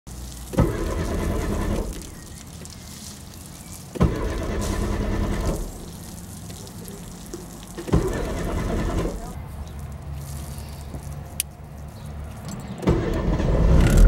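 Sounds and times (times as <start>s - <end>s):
starter motor cranking engine: 0.4s - 2.6s, 3.9s - 6.2s, 7.8s - 9.4s, 12.5s - 14.0s.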